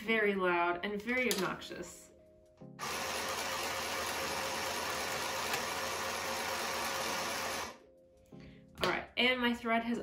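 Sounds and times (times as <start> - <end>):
mini sewing machine motor: 2.8 - 7.8.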